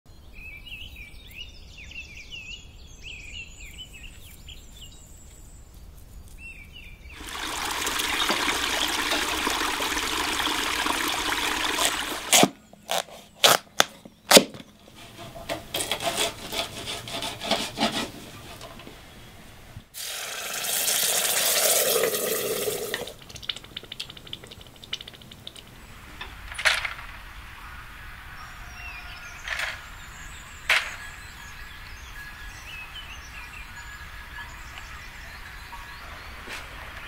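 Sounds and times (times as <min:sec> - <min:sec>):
birds chirping: 0:00.1 - 0:15.4, 0:23.1 - 0:37.0
water running over rocks: 0:07.2 - 0:12.5, 0:20.0 - 0:26.0
soft uneven clicking: 0:23.1 - 0:26.3.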